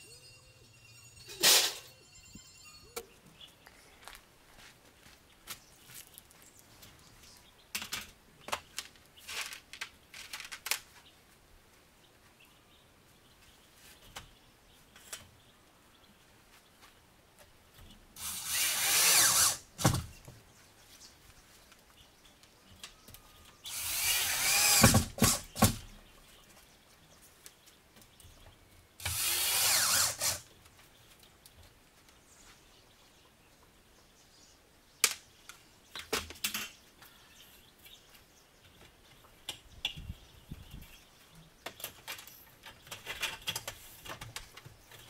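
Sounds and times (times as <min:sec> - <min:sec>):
power tool on corrugated steel: 0:18.2 - 0:20.0, 0:23.6 - 0:25.8, 0:29.0 - 0:30.5.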